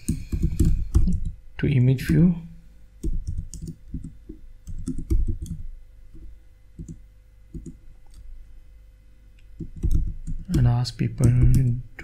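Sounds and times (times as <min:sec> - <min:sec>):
computer keyboard typing: 0:00.0 - 0:01.4, 0:03.0 - 0:05.6, 0:06.8 - 0:08.3, 0:09.6 - 0:11.8.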